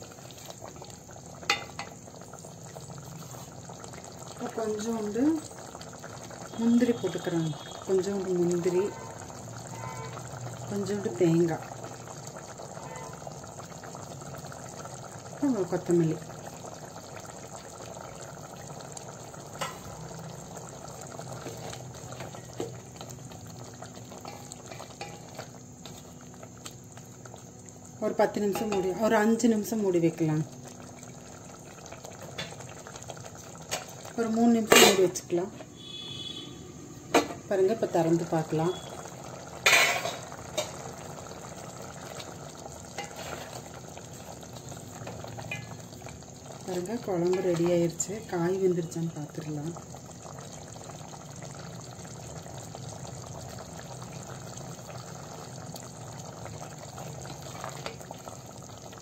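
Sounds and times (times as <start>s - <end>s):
curry bubbling in a pan: 0.0s - 59.0s.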